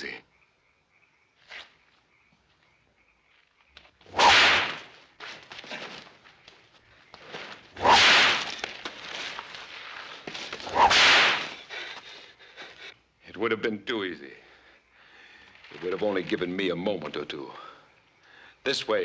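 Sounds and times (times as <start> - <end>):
faint background noise: 0.0 - 19.0
bullwhip cracking: 4.1 - 4.9, 7.8 - 8.7, 10.6 - 11.6.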